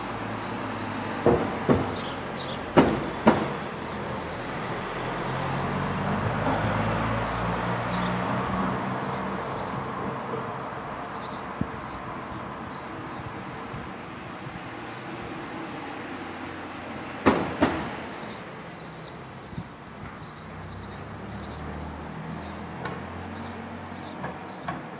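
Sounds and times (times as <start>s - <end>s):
sparrow chirping: 1.9s - 2.7s, 3.7s - 4.6s, 6.7s - 8.2s, 9.0s - 9.8s, 11.1s - 13.4s, 14.0s - 24.8s.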